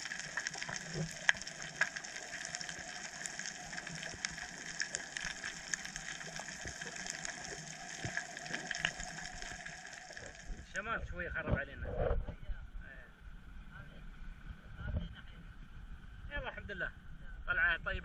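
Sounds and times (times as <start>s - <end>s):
sharp clicks and crackles: 0.0s - 10.7s
underwater hiss: 0.0s - 10.7s.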